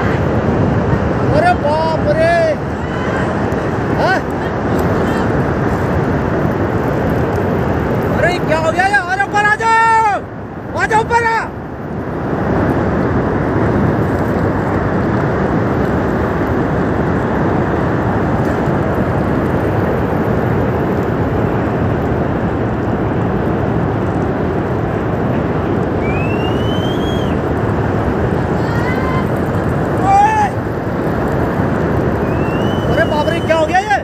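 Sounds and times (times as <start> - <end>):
flood water rushing down river: 0.0 - 34.0
short high whistle: 26.0 - 27.4, 32.2 - 33.6.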